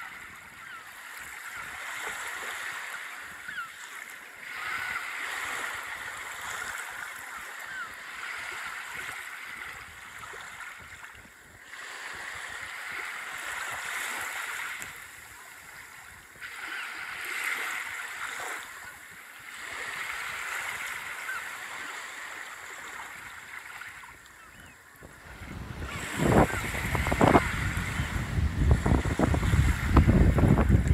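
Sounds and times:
surf breaking on beach: 25.0s - 30.9s.

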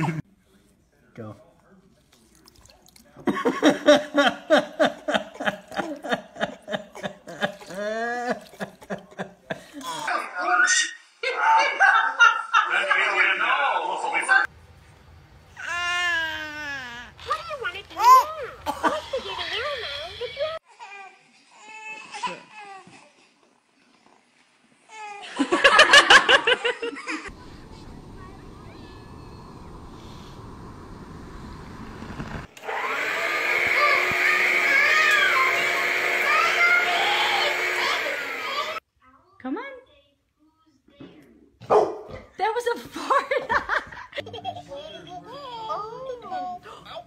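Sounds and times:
person laughing hard: 0.0s - 0.2s, 3.4s - 9.8s.

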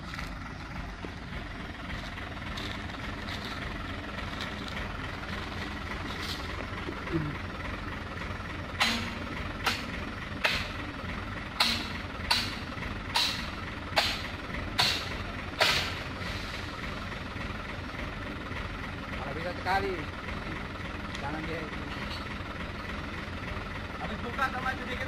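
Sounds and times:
diesel truck engine running: 0.0s - 25.0s
sharp knocks: 11.6s - 16.0s.

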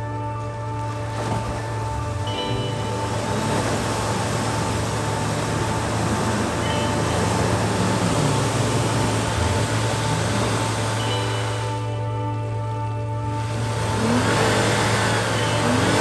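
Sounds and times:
background music: 0.0s - 16.0s
vehicle running: 0.0s - 16.0s.

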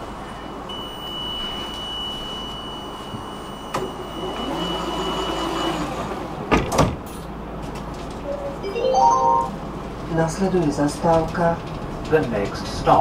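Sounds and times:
high warning tone: 8.3s - 9.7s.

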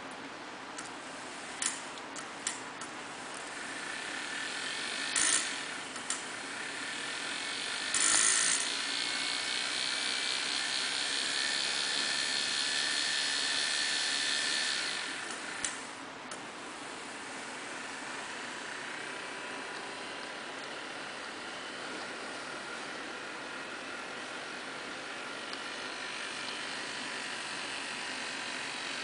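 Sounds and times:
electric motor whirring whine: 3.2s - 29.0s.

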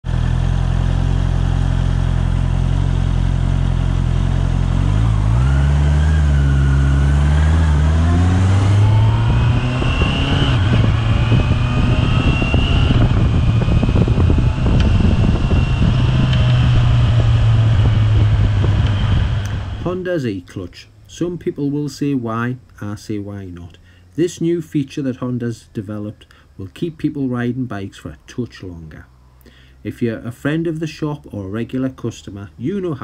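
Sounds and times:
motorcycle engine revving: 0.0s - 19.9s
wind noise on microphone: 4.8s - 20.0s.

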